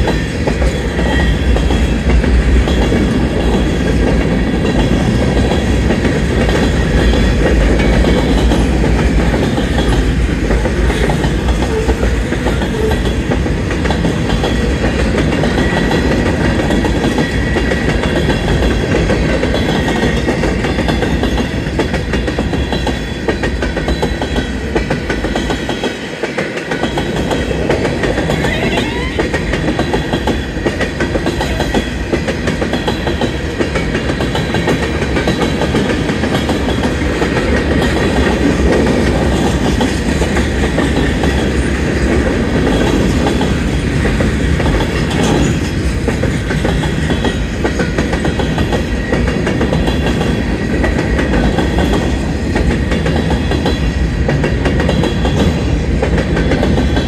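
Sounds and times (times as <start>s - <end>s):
clickety-clack of wheels on rails: 0.0s - 57.0s
freight train rumbling past: 0.0s - 57.0s.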